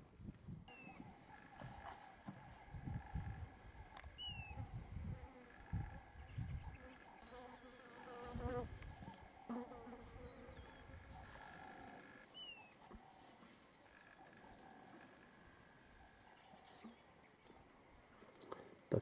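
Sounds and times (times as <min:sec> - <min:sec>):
insects buzzing: 0:02.8 - 0:12.7.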